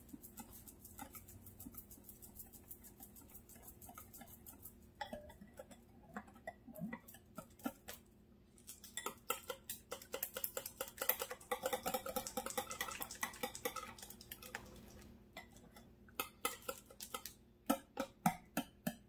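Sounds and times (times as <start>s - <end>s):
wire whisk ticking against glass bowl: 0.0s - 7.9s, 8.8s - 14.6s, 16.2s - 19.0s.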